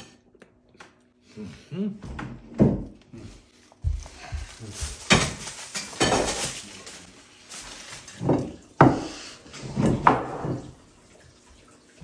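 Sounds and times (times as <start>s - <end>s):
household knocks and thuds: 3.8s - 6.6s.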